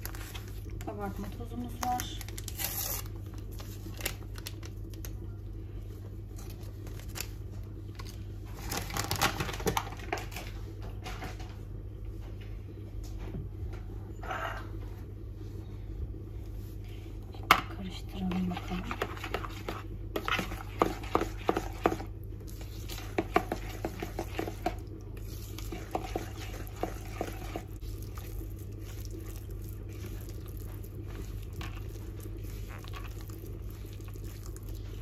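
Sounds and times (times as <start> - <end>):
steady low hum: 0.0 - 35.0
utensil scraping and clinking bowl: 18.1 - 34.6.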